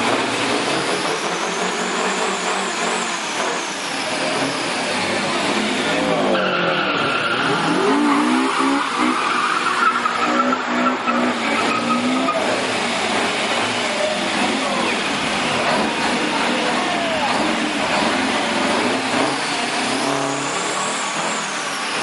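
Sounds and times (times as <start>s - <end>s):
diesel engine revving: 0.0s - 22.0s
loud rushing noise: 0.0s - 22.0s.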